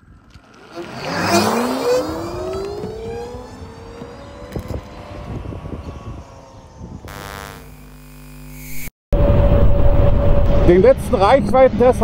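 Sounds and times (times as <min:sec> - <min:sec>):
electric motorcycle motor whine: 0:00.4 - 0:08.9
rush of noise: 0:08.7 - 0:12.0.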